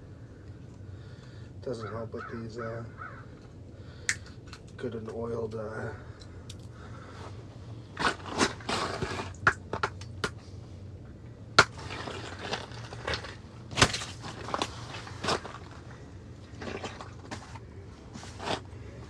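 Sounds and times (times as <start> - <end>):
crunching and scraping ice: 6.9 - 10.4, 11.6 - 19.0.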